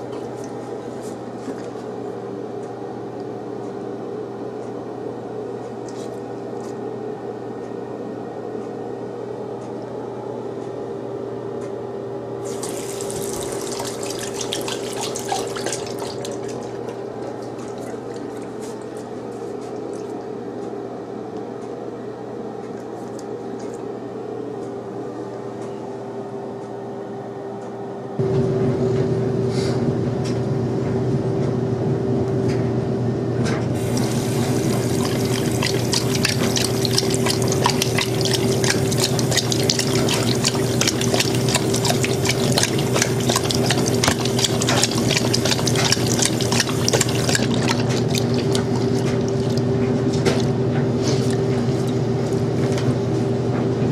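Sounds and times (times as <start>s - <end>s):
dog lapping water: 12.4s - 20.4s, 33.8s - 52.0s
tap running into basin: 12.5s - 18.5s, 33.8s - 50.5s
steady hum: 33.8s - 53.3s.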